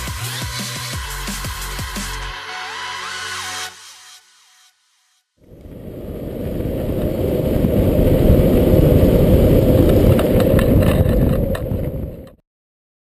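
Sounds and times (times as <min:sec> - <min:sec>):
wind buffeting microphone: 0:05.4 - 0:12.4
longboard road noise: 0:05.5 - 0:12.4.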